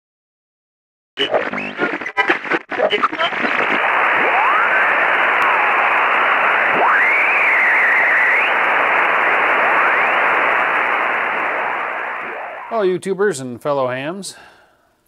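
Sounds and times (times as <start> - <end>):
radio static hiss: 1.2 - 13.0
whistling tones gliding in pitch: 6.6 - 12.8.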